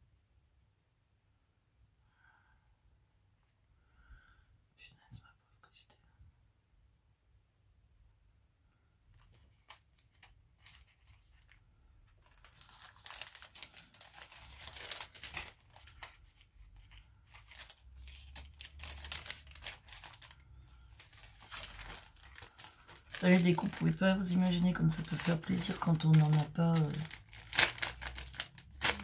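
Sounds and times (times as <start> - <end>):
paper packaging crinkling: 9.1 - 29.0.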